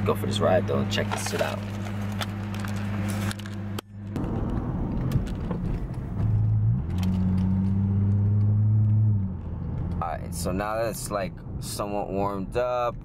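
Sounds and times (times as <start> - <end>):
car engine droning: 0.0 - 13.0
car interior clicks and rattles: 1.0 - 10.1.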